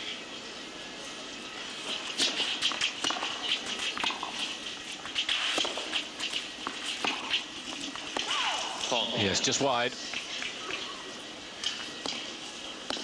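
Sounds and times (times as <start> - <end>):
steady hiss: 0.0 - 13.0
racket striking tennis ball: 2.0 - 8.9.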